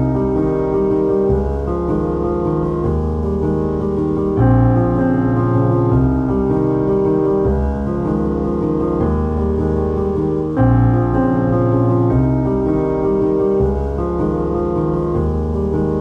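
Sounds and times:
piano chords: 0:00.0 - 0:16.0.

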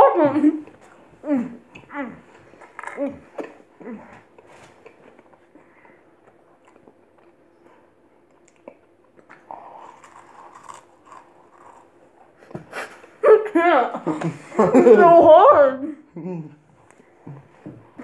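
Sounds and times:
crackers crunching while chewed: 0:02.5 - 0:07.4, 0:08.2 - 0:12.5.

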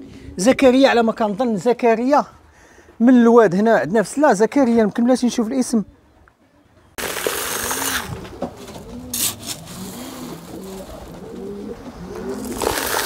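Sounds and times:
pigeons cooing: 0:07.3 - 0:13.0.

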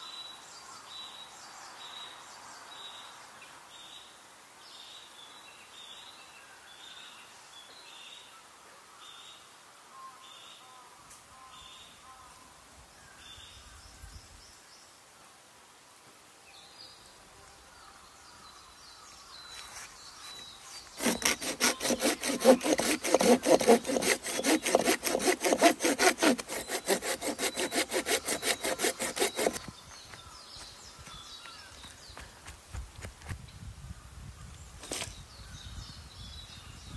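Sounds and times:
hand saw cutting branch: 0:20.9 - 0:30.2.

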